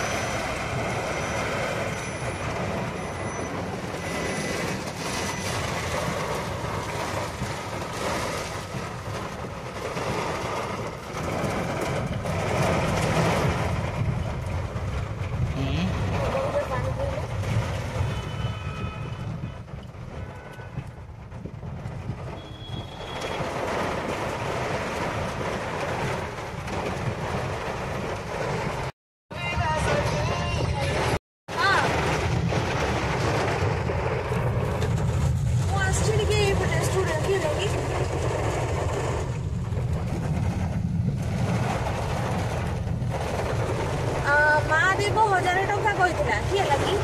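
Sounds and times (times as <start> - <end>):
rain and tyre spray hiss: 0.0 - 15.0
rain hissing on windscreen: 0.0 - 18.2, 31.6 - 47.0
car engine and road rumble: 0.0 - 47.0.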